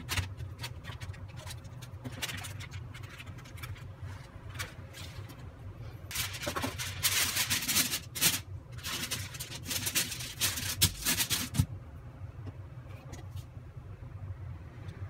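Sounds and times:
aluminium foil crinkling: 0.0 - 5.5, 6.1 - 11.7.

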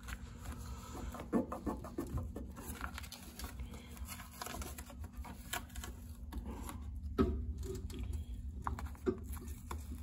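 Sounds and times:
masking tape crinkling: 0.0 - 6.9.

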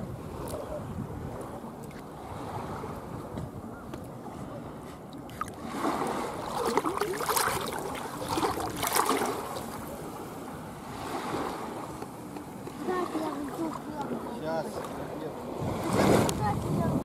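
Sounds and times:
seawater splashing around feet: 4.7 - 10.2.

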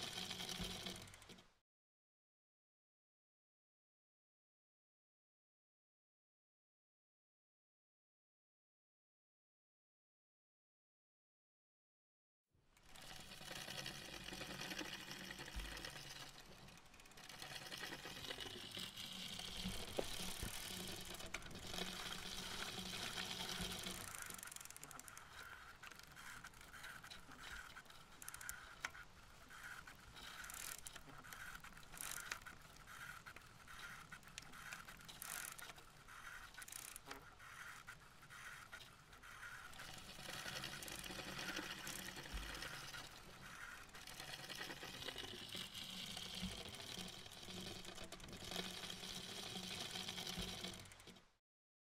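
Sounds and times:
bicycle chain rattling: 0.0 - 1.4, 12.8 - 37.8, 39.5 - 51.2
bicycle tyres rolling on asphalt: 0.0 - 1.4, 12.8 - 51.2
mechanical ticking: 12.9 - 37.8.

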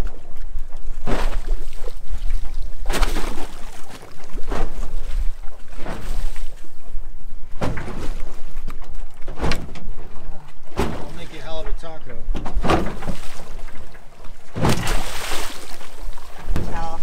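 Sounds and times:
fish splashing at surface: 14.5 - 16.3.

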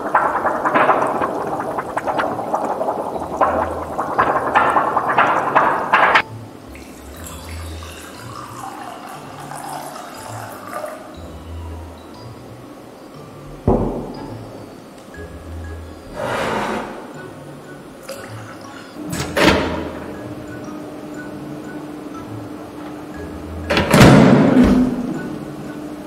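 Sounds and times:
thin sheet flexed and shaken: 0.0 - 6.2
water poured into a cup: 6.7 - 11.3.

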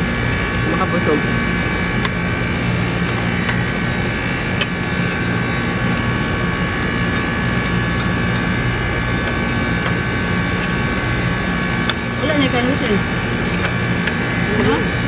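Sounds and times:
machine humming: 5.9 - 8.9.

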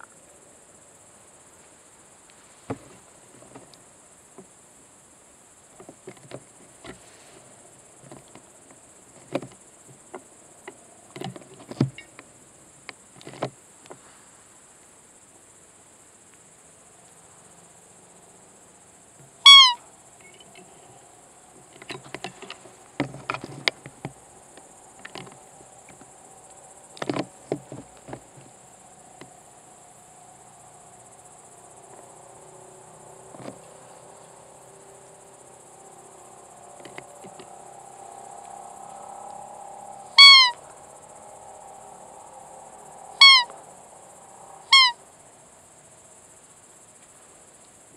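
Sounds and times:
crickets chirring: 0.0 - 47.9
rustling: 5.8 - 10.2, 19.2 - 29.2
high squeak of deer call: 19.4 - 20.8, 40.1 - 40.7, 43.2 - 43.6, 44.7 - 45.0.

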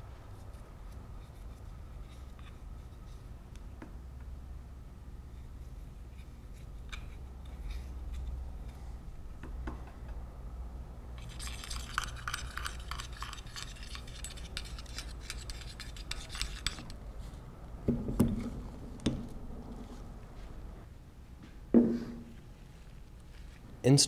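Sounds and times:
metal cylinder scraping over piston: 11.2 - 17.0.

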